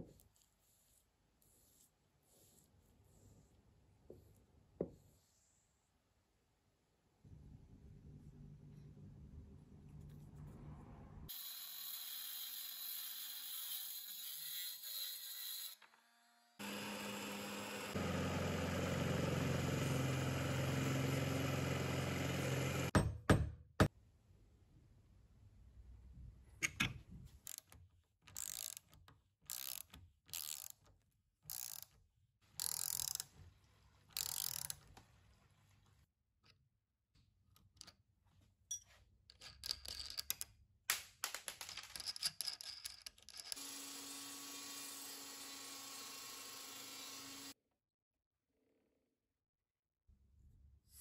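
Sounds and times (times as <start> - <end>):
drill press boring into wood: 16.6 - 23.0
ratchet wrench clicking: 28.3 - 28.9, 29.5 - 30.8, 31.5 - 31.9, 32.6 - 33.2, 34.2 - 34.7.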